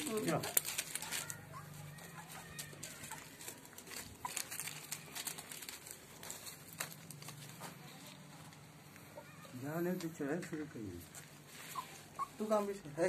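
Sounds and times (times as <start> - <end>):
clicks and rustles of movement: 0.0 - 8.7.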